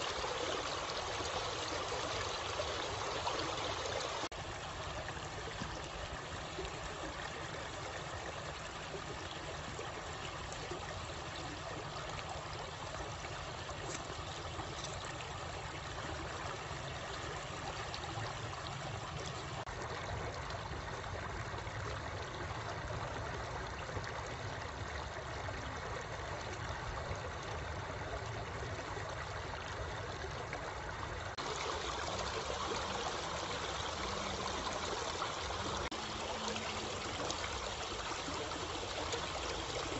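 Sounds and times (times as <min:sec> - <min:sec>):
stream rushing over rocks: 0:00.0 - 0:19.7, 0:31.3 - 0:39.9.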